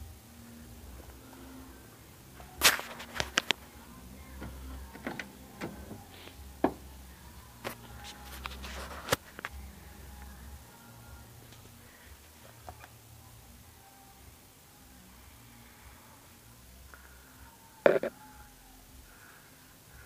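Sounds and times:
low steady rumble: 0.0 - 17.6.

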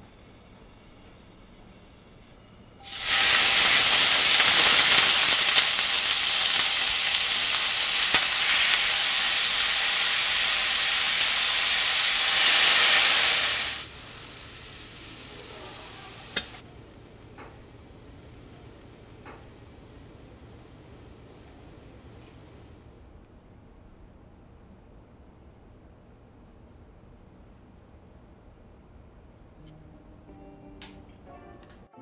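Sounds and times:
food sizzling in oil: 2.8 - 16.6.

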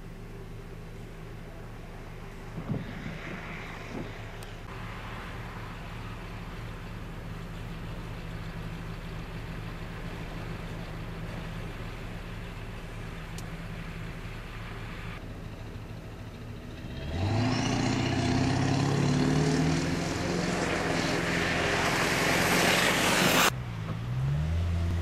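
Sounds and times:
vehicle engines idling: 0.0 - 24.2
car engine revving: 16.6 - 25.0
tyres hissing through slush: 19.4 - 23.5.

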